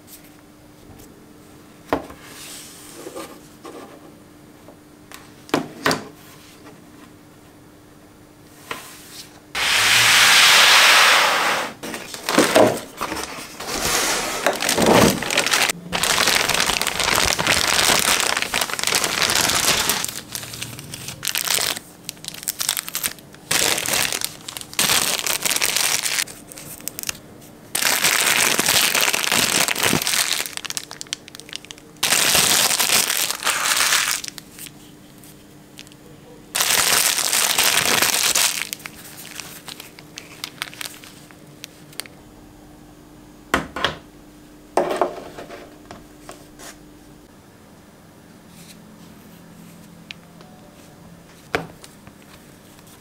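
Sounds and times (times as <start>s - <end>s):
plastic packaging crinkling: 11.8s - 36.0s, 36.6s - 42.1s.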